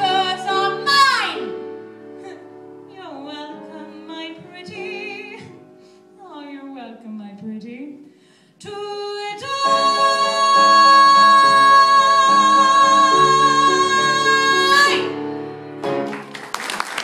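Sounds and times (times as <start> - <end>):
piano chords: 0.0 - 6.7, 8.8 - 17.0
audience applause: 16.0 - 17.0.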